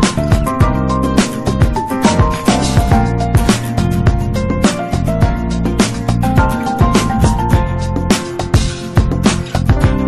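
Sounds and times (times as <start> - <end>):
plucked melody: 0.0 - 10.0
steady drum beat: 0.0 - 10.0.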